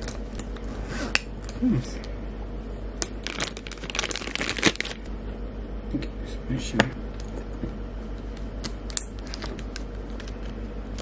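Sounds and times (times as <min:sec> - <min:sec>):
steady low hum: 0:00.0 - 0:11.0
plastic bag crinkling: 0:03.1 - 0:05.1, 0:09.1 - 0:11.0.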